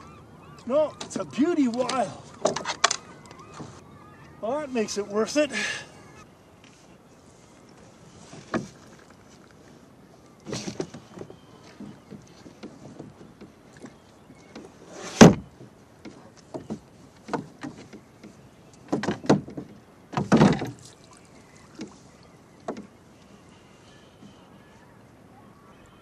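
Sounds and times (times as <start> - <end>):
knocks against boat hull: 16.0 - 20.8.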